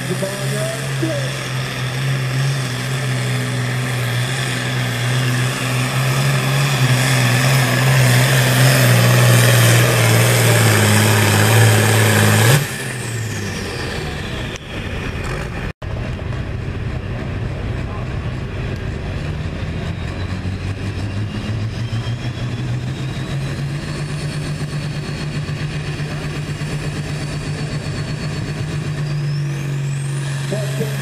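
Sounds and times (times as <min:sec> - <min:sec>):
engine whine winding down: 0:00.0 - 0:31.0
tractor diesel engine under load: 0:00.0 - 0:31.0.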